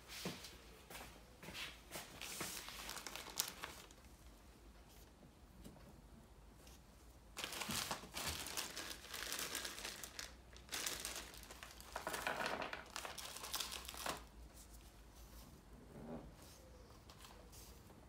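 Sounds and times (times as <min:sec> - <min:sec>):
plastic bag crinkling: 0:02.5 - 0:04.1, 0:07.4 - 0:14.4.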